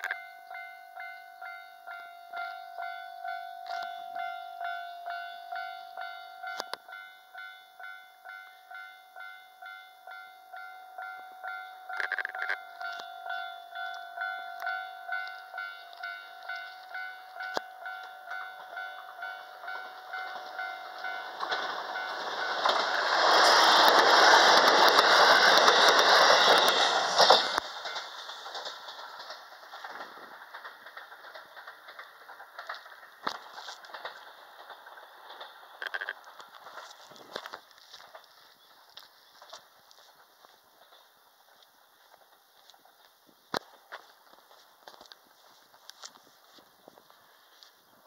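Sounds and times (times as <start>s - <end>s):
level crossing alarm clanging: 0.0s - 28.3s
electric train passing: 0.0s - 48.0s
train wheels clicking over rail joints: 11.5s - 48.0s.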